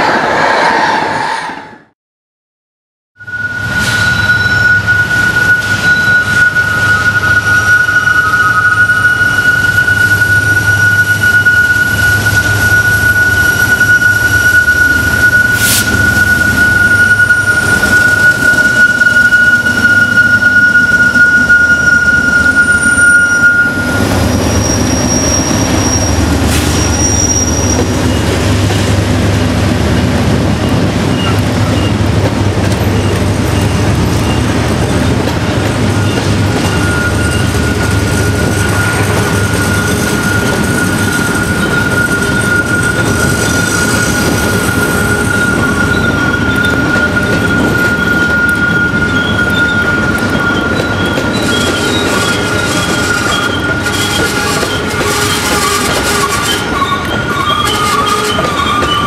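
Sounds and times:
high-pitched wheel squeal: 3.2s - 28.9s, 32.7s - 59.0s
diesel freight train passing: 3.2s - 59.0s.

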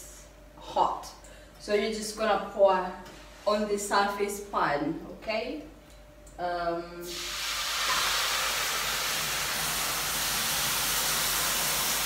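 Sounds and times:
water hissing into steam: 7.0s - 12.0s.

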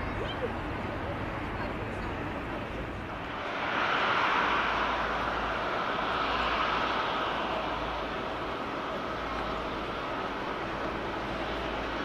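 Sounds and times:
jet engines running: 0.0s - 12.0s.

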